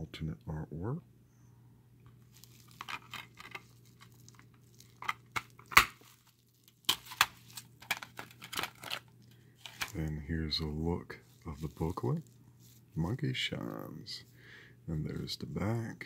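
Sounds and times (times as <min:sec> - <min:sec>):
faint low hum: 0:00.0 - 0:16.0
bubble wrap crinkling: 0:02.1 - 0:14.3.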